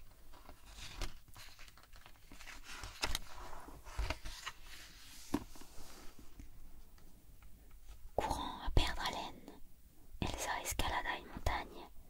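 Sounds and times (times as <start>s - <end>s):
book page turning: 0.0s - 6.2s.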